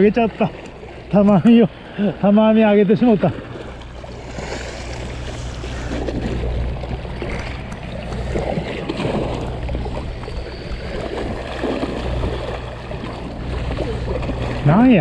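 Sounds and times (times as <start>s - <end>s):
low ship engine drone: 0.0s - 15.0s
sea water washing on shore: 0.0s - 15.0s.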